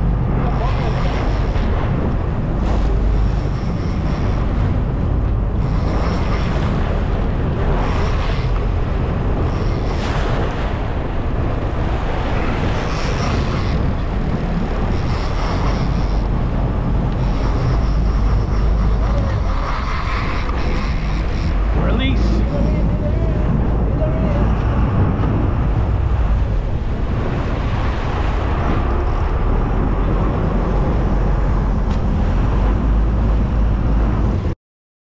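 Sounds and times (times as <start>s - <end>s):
choppy sea wash: 0.0s - 34.6s
wind buffeting microphone: 0.0s - 34.6s
low engine rumble: 13.8s - 34.5s.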